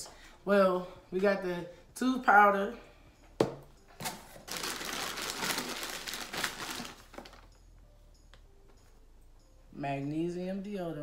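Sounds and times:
packing wrap crinkling: 0:04.3 - 0:07.5.

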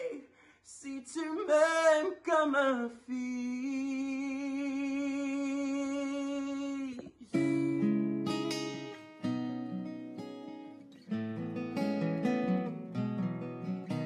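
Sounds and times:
man singing unaccompanied: 0:00.0 - 0:08.9.

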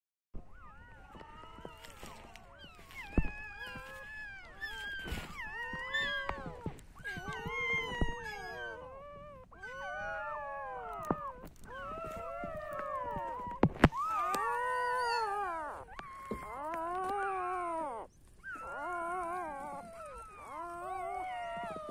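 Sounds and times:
puppies crying and whining: 0:00.4 - 0:21.9.

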